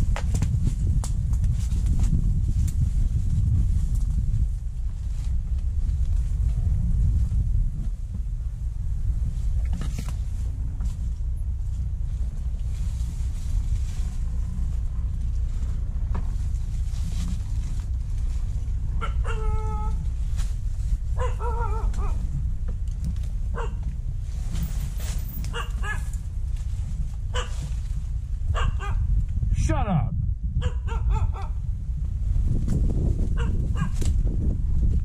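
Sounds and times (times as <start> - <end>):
steady low rumble: 0.0 - 35.0
dog barking and whining: 19.0 - 20.0, 21.2 - 22.2, 23.5 - 23.8, 25.5 - 26.1, 27.3 - 27.6, 28.5 - 29.0, 30.6 - 31.6.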